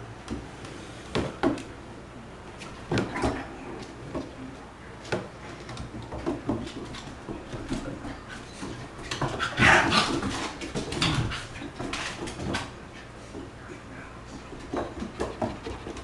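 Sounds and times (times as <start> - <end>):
dog play-fighting noises: 2.6 - 4.6, 5.2 - 16.0.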